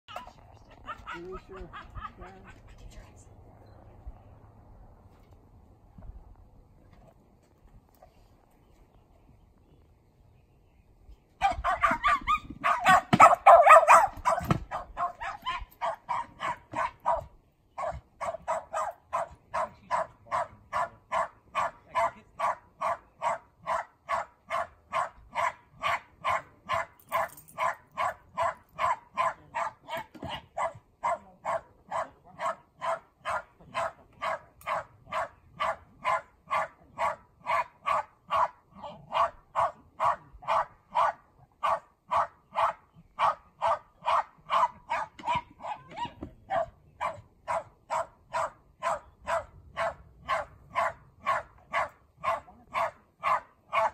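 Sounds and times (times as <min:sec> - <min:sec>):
dog barking: 0:11.4 - 0:53.9.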